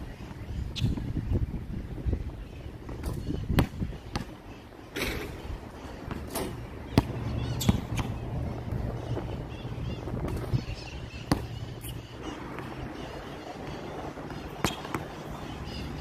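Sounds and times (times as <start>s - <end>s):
basketball bouncing on hard court: 2.9s - 4.4s, 6.1s - 8.2s, 11.2s - 11.6s.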